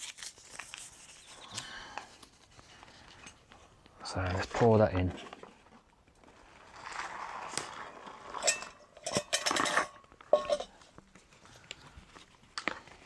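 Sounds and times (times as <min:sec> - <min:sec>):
metal pot clinking and clattering: 0:08.3 - 0:10.9.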